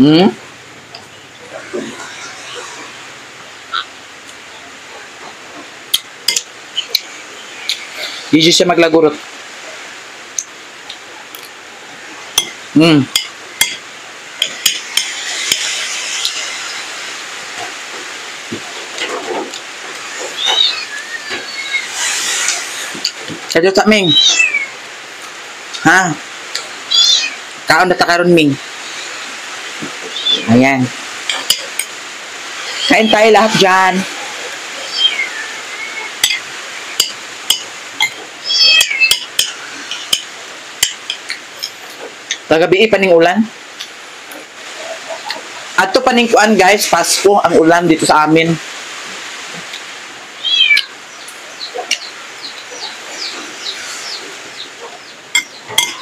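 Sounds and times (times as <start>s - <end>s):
cat meowing: 20.0s - 22.9s, 23.9s - 24.8s, 26.9s - 27.5s, 29.9s - 30.6s, 32.6s - 36.4s, 38.1s - 39.6s, 50.4s - 51.0s.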